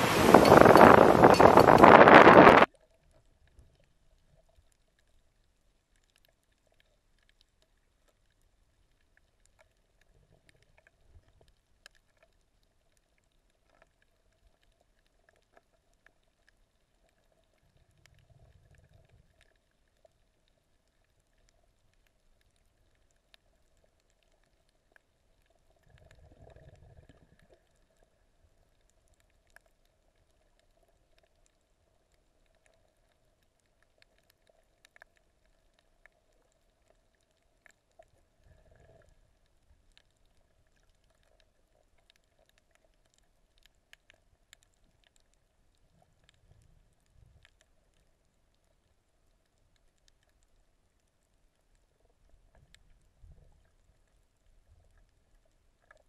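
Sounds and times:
wind buffeting microphone: 0.0s - 2.7s
faint underwater hum: 0.0s - 56.0s
soft low underwater rumbles: 0.0s - 56.0s.

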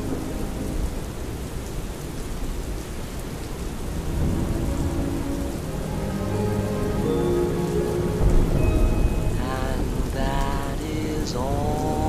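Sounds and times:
steady rain: 0.0s - 12.0s
low rumble of thunder: 3.3s - 6.7s, 7.6s - 12.0s.

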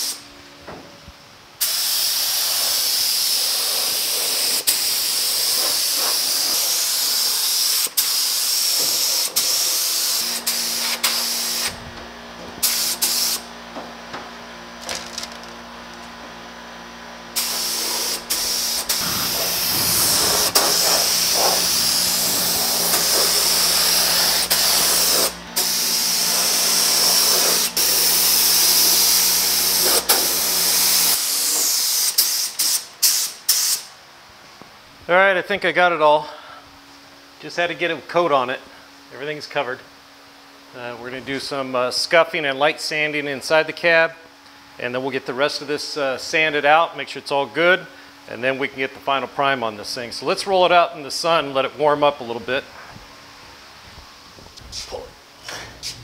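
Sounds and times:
air spray gun hissing: 0.0s - 0.2s, 1.6s - 11.8s, 12.6s - 13.5s, 17.3s - 33.9s, 54.7s - 56.0s
steady low hum: 0.0s - 56.0s.

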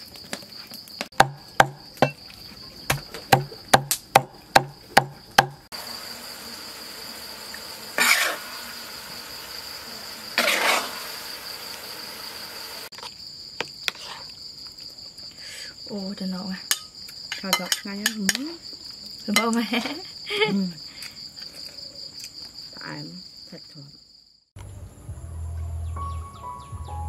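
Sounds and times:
high insect trill: 0.0s - 27.0s
sharp knocks with dull thud: 1.1s - 2.2s, 2.9s - 5.7s.

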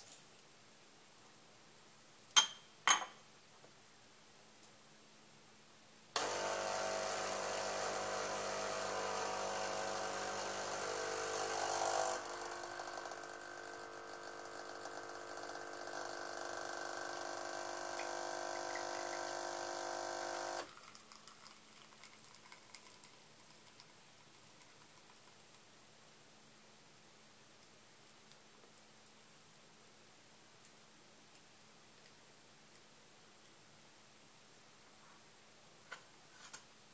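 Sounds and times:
espresso machine pump humming: 6.2s - 21.5s.

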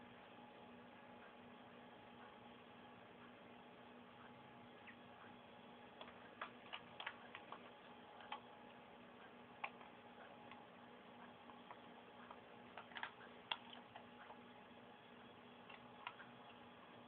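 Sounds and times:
low steady hum: 0.0s - 17.0s
small clicks: 6.0s - 8.5s, 11.5s - 14.4s.

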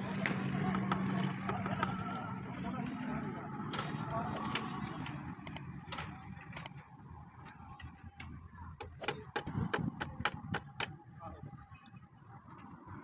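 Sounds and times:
thin high tone: 7.5s - 9.4s
hammer tapping nails: 7.8s - 10.9s.

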